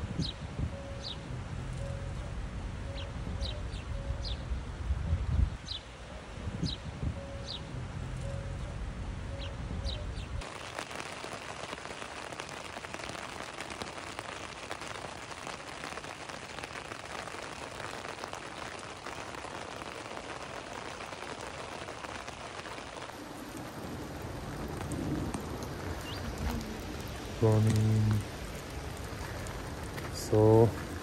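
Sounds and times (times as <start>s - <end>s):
low wind rumble: 0.0s - 10.8s, 16.4s - 31.0s
heavy rain on a tent: 10.4s - 31.0s.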